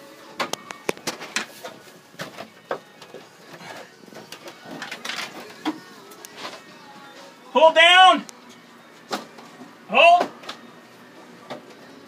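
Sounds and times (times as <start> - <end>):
air conditioner unit clicking and rattling: 0.4 - 6.6.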